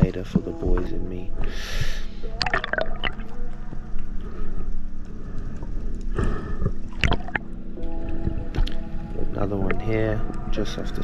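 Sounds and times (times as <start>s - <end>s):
background music with low notes: 0.0s - 11.0s.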